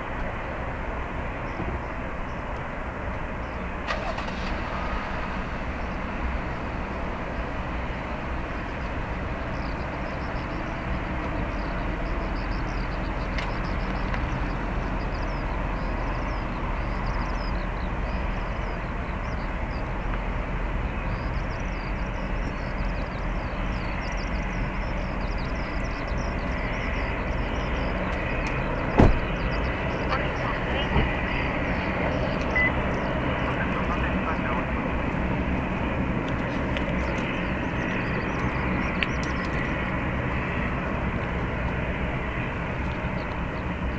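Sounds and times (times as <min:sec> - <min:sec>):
jet engines roaring: 0:00.0 - 0:43.9.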